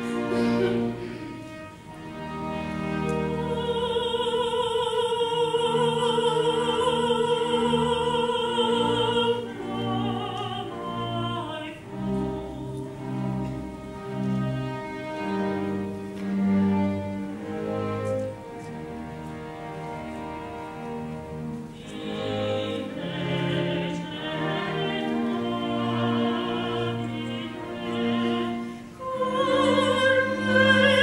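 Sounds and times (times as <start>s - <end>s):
string orchestra: 0.0s - 31.0s
woman singing opera aria: 3.1s - 13.6s, 21.7s - 31.0s.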